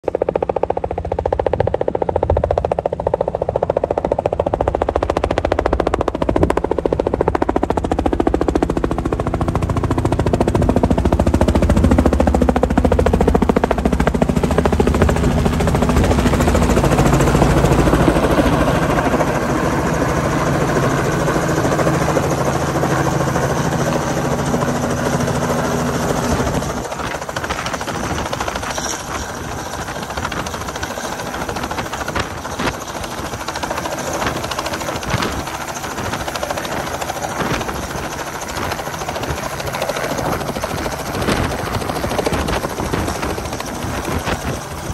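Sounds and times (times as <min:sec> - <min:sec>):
helicopter rotor chopping: 0:00.0 - 0:44.9.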